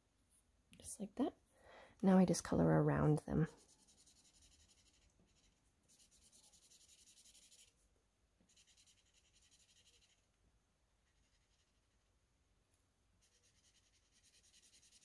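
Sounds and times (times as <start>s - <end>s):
marker scratching on paper: 3.4s - 7.8s, 8.5s - 10.2s, 11.1s - 11.8s, 13.2s - 15.0s.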